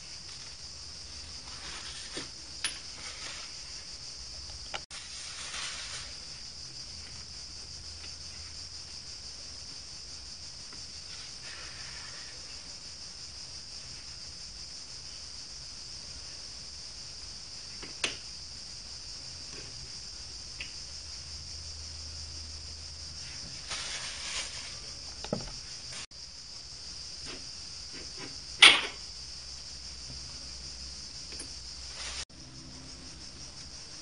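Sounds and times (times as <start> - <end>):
steady high hiss: 0.0 - 34.0
short metal scrape: 4.9 - 6.2, 23.6 - 25.0.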